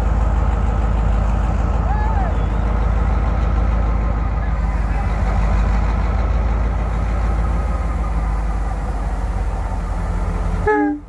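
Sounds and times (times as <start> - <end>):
diesel engine low drone: 0.0 - 11.0
heavy rain hissing: 4.4 - 10.7.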